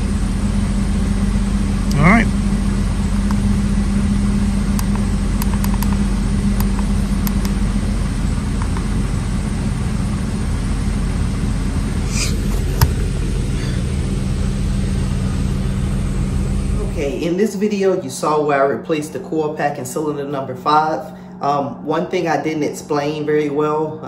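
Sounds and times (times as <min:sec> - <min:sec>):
car engine idling: 0:00.0 - 0:18.5
sharp click: 0:04.8 - 0:06.0, 0:06.6 - 0:07.6.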